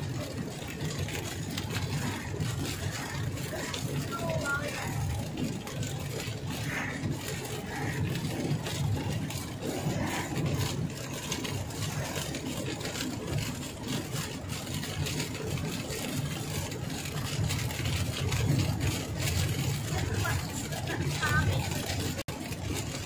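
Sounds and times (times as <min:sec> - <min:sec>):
car engine and road drone: 0:00.0 - 0:23.0
rain ticking on windscreen: 0:00.0 - 0:23.0
tyres on wet road: 0:00.0 - 0:23.0.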